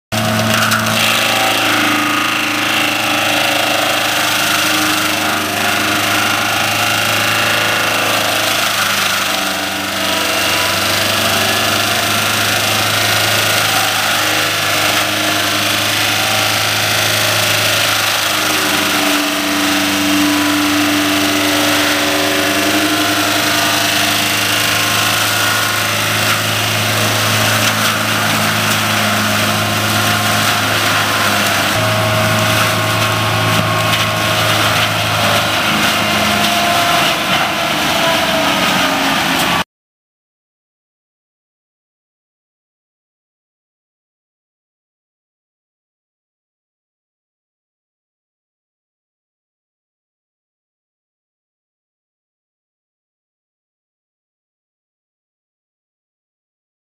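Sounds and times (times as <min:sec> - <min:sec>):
mulcher rotor grinding brush: 0:00.1 - 0:39.6
tractor diesel engine under load: 0:00.1 - 0:39.7.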